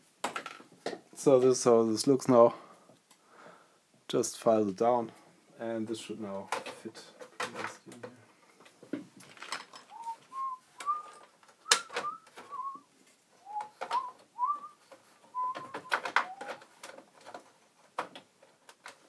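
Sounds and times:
person whistling: 9.9s - 16.6s.

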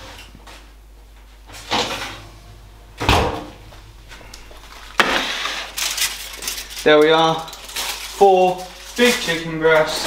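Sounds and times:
door closing thump: 3.0s - 3.6s.

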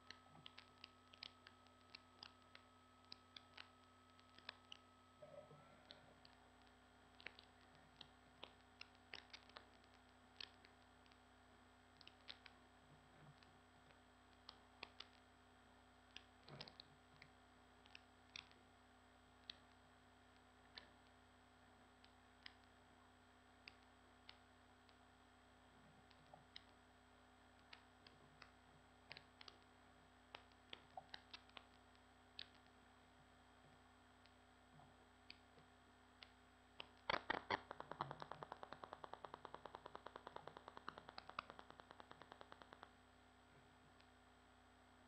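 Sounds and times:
faint steady hum: 0.0s - 45.0s
keyboard and mouse clicks: 36.8s - 42.9s.

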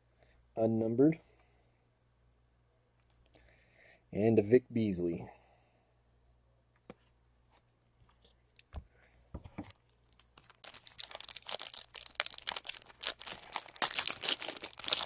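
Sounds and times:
foil wrapper tearing and crinkling: 9.7s - 15.0s.

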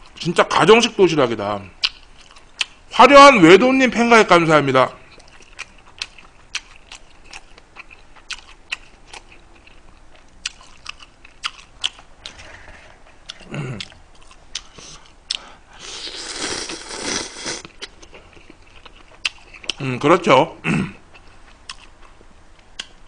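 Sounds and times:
man chewing: 1.8s - 2.8s, 5.1s - 19.8s, 21.1s - 23.0s
slurping noodles: 15.8s - 17.7s.

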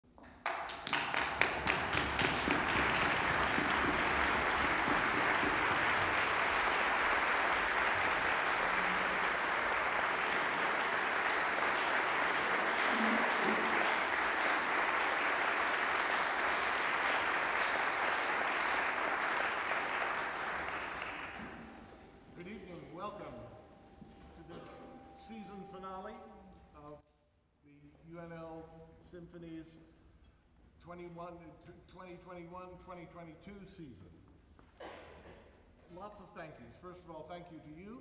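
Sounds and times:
audience applauding: 0.3s - 22.1s.

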